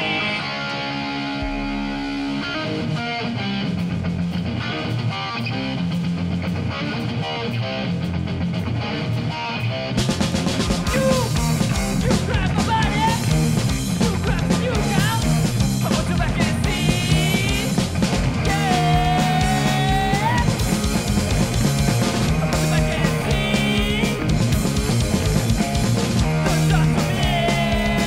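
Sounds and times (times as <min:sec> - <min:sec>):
bass guitar: 0:00.0 - 0:28.0
distorted electric guitars: 0:00.0 - 0:28.0
drums: 0:00.0 - 0:28.0
person singing: 0:10.8 - 0:13.3, 0:14.0 - 0:17.8, 0:18.4 - 0:20.6, 0:22.4 - 0:24.3, 0:26.4 - 0:28.0.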